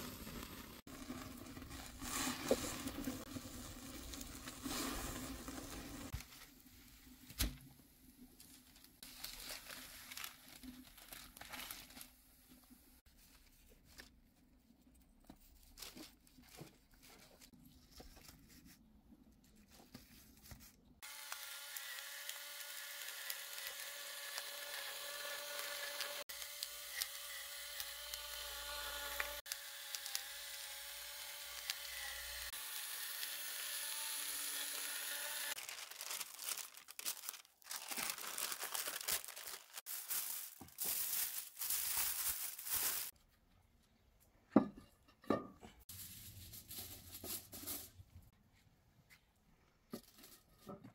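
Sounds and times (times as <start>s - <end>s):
foil crumpling: 8.4s - 12.2s, 35.5s - 43.1s.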